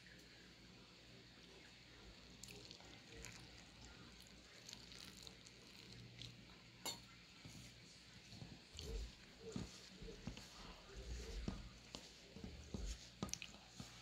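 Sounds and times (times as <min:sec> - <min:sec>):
low steady hum: 0:00.0 - 0:14.0
hands mixing flour in metal bowl: 0:07.4 - 0:14.0.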